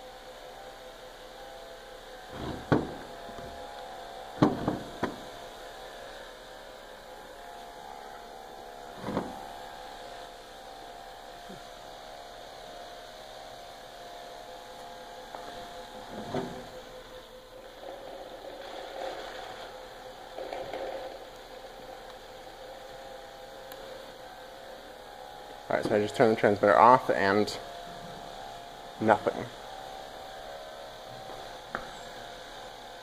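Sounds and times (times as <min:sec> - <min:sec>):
robot spinning hum: 0:15.0 - 0:22.0.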